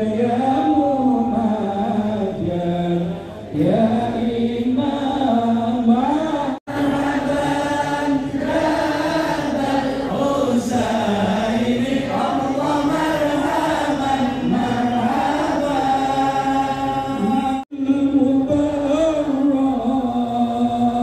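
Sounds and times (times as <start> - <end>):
devotional chanting: 0.0 - 21.0.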